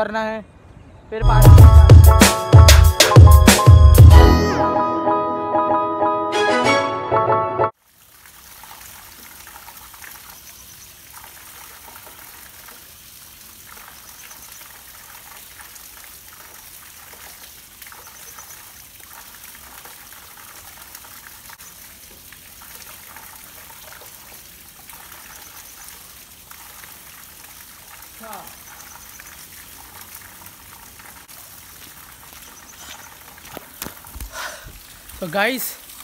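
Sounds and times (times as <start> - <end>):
spring water trickling: 7.8 - 36.0.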